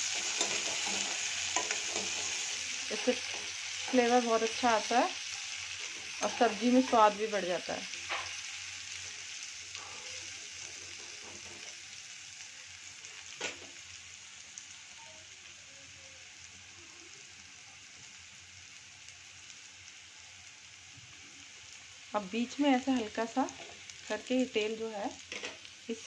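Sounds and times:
onions sizzling in hot oil: 0.0 - 26.0.

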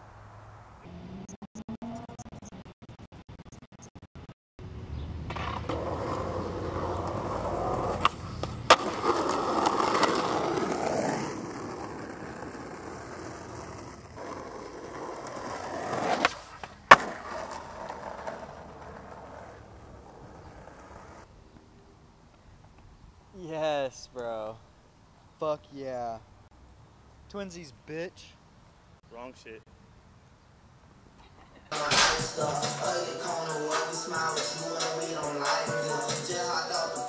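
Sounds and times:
skateboard wheels rolling on asphalt: 4.6 - 21.6
skateboard clacks: 5.3 - 11.2, 13.2 - 21.2, 31.7 - 32.8.

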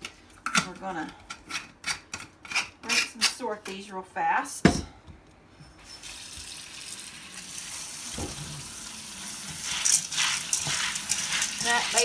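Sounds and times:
tap water running over beans: 6.3 - 12.0.

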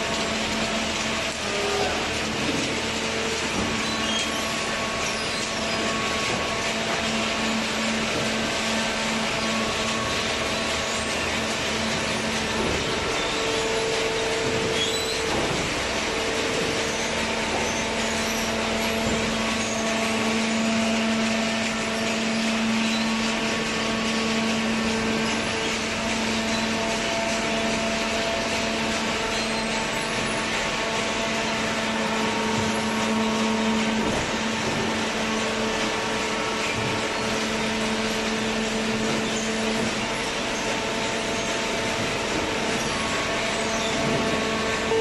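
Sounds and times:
baler machine humming: 0.0 - 45.0.

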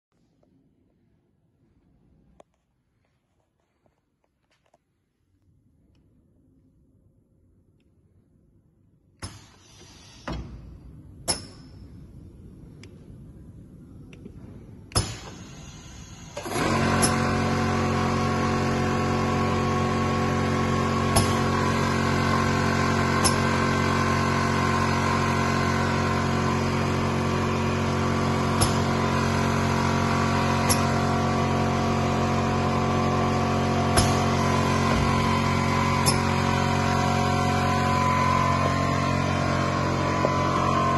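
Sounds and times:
electric saw motors running: 15.9 - 40.9.

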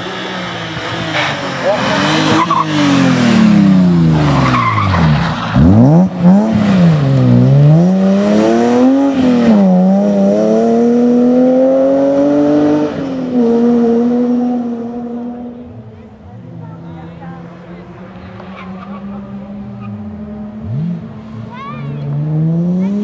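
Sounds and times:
rally car engine revving: 0.0 - 23.0.

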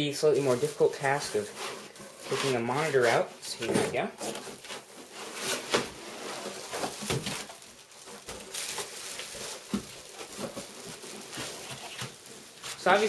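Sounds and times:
plastic wrapping crinkling: 0.1 - 13.0
foam packing rubbing: 0.4 - 3.6, 4.2 - 13.0.

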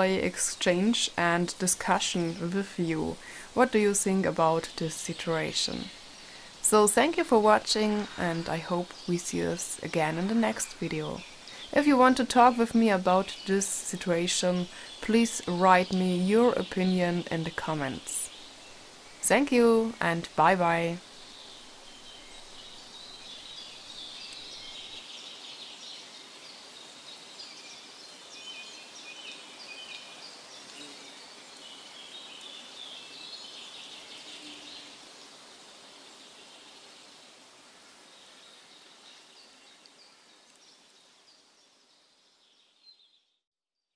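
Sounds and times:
small birds chirping: 0.0 - 37.2, 38.0 - 43.4
steady hiss: 0.0 - 43.0.

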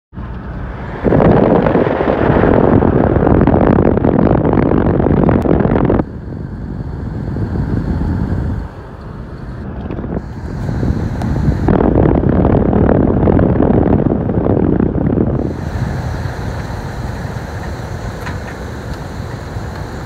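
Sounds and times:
vehicle road noise: 0.1 - 20.0
wind over microphone: 0.2 - 20.0.

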